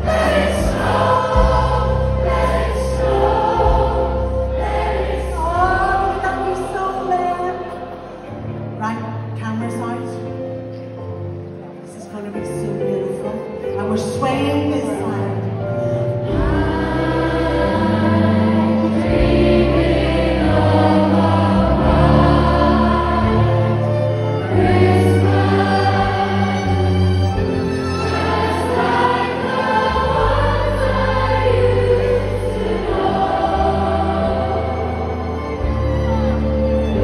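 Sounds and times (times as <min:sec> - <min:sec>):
low bass line: 0:00.0 - 0:05.6
gospel choir singing: 0:00.0 - 0:08.8, 0:15.8 - 0:37.0.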